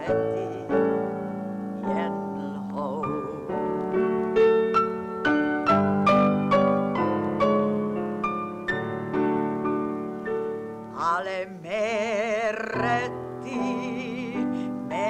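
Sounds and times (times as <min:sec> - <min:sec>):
woman singing operetta: 0:00.0 - 0:03.8, 0:10.9 - 0:15.0
grand piano chords: 0:00.0 - 0:15.0.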